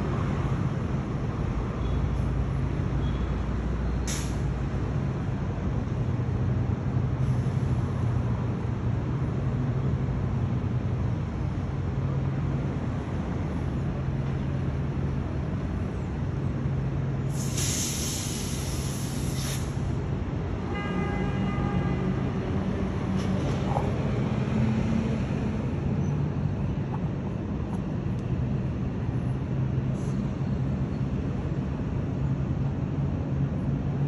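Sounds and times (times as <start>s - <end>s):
ship machinery hum and rumble: 0.0s - 34.0s
hiss: 4.0s - 4.5s, 17.3s - 19.9s.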